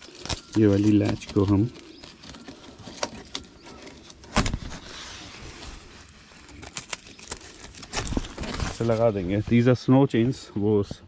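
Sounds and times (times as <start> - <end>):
canvas top rustling: 0.0 - 9.7.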